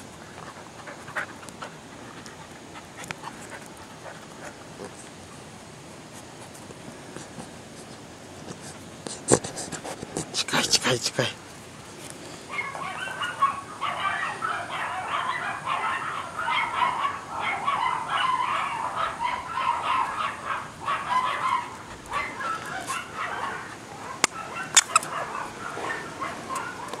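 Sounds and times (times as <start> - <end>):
puppy vocalizing: 0.2 - 5.4, 8.4 - 11.4, 12.5 - 27.0
sharp clicks: 24.2 - 25.1.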